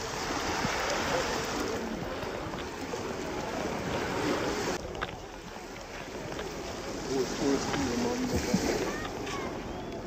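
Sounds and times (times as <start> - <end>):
small waves washing onto beach: 0.0 - 10.0.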